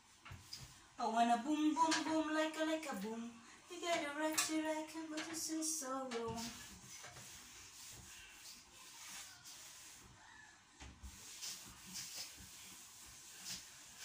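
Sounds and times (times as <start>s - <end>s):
cloth wiping wood: 6.4s - 10.4s, 11.0s - 14.0s.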